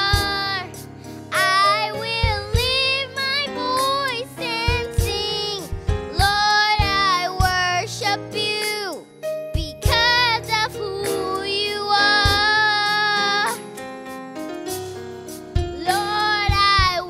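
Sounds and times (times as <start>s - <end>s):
backing music track with drums: 0.0s - 17.0s
girl singing held notes: 9.6s - 13.6s.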